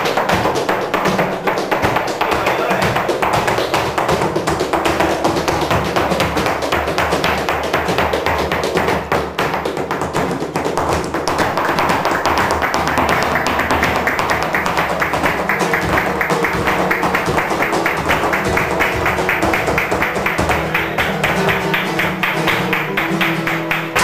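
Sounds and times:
flamenco guitar: 0.0s - 24.0s
heeled shoes tapping on floor: 0.0s - 24.0s.

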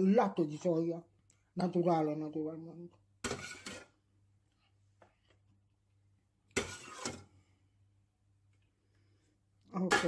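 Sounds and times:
metal ladle scraping pot: 3.2s - 4.1s, 6.5s - 7.4s, 9.8s - 10.0s.

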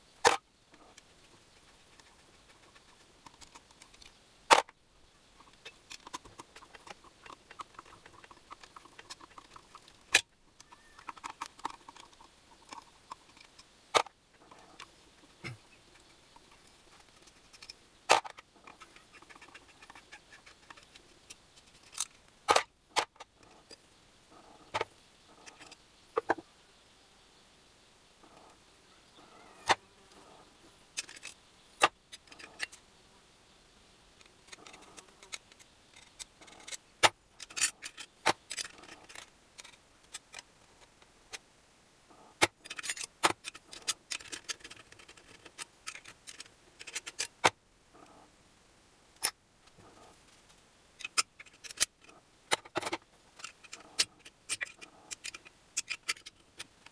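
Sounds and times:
metal parts rattling: 37.4s - 40.4s, 42.6s - 47.3s, 51.0s - 56.4s
metal tools clicking and clinking: 37.4s - 40.4s, 42.4s - 47.3s, 51.0s - 56.7s.

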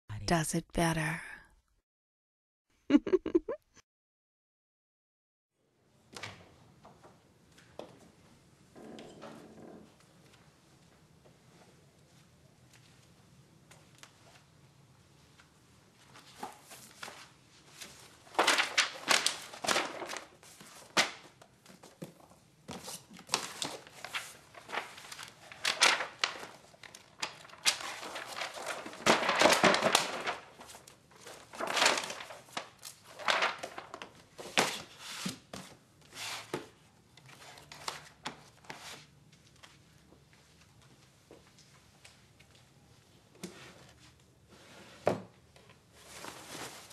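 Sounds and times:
paper rustling: 16.0s - 36.6s.

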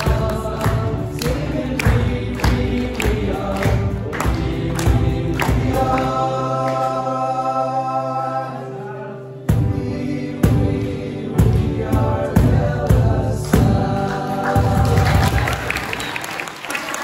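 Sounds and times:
cajon beat: 0.0s - 6.3s, 9.5s - 15.9s
boys singing pop song: 0.0s - 16.0s
acoustic guitar: 0.0s - 16.2s
piano: 0.0s - 17.0s.

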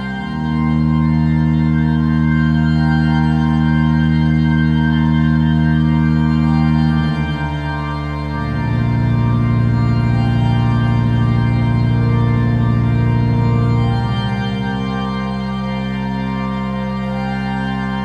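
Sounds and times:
music of sustained chords: 0.0s - 18.0s.

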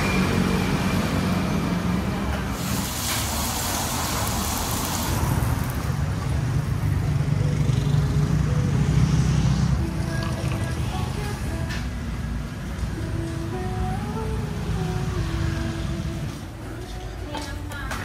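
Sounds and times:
vehicles passing with low rumble: 0.0s - 18.0s
hissing burst: 2.6s - 5.9s.

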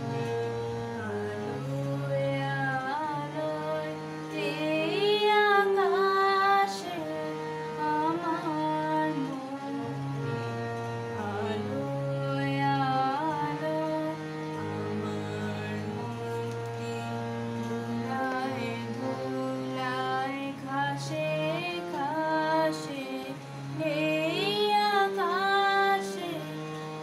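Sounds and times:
harmonium chords: 0.0s - 27.0s
woman singing: 1.5s - 10.1s, 11.2s - 14.4s, 18.0s - 26.8s.

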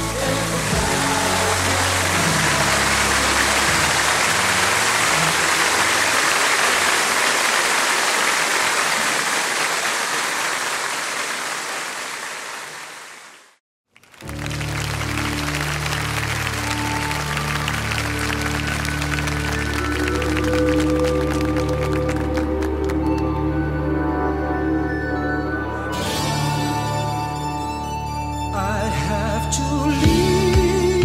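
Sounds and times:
live song: 0.0s - 6.8s, 14.2s - 31.0s
live song low notes: 0.0s - 6.8s, 14.2s - 31.0s
audience applause: 0.0s - 23.2s.

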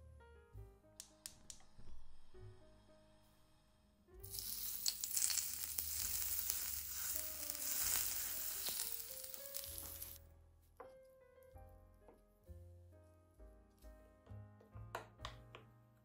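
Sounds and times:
soft background music: 0.0s - 16.0s
hot oil sizzling and crackling: 4.2s - 10.2s.

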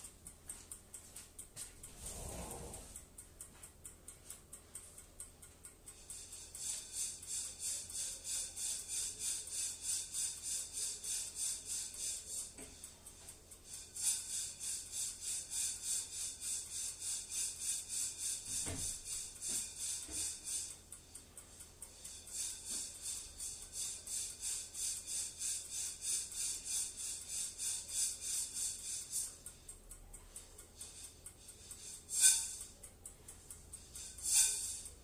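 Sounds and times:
coffee beans rattling in a pan: 13.7s - 20.8s, 21.7s - 29.4s, 30.4s - 32.8s, 33.7s - 35.0s.

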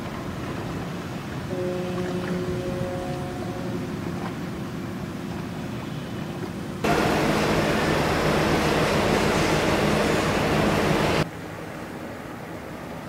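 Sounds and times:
ship engine drone: 0.1s - 13.0s
loud rushing noise: 6.8s - 11.3s.

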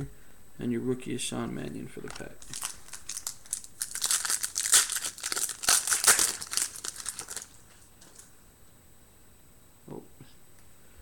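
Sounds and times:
plastic wrapper tearing and crinkling: 2.1s - 8.3s.

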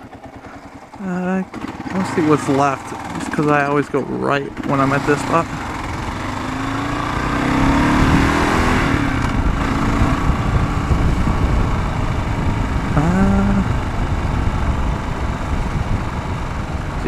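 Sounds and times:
motorcycle engine pulling away: 0.0s - 17.0s
wind noise on microphone: 5.6s - 17.0s.

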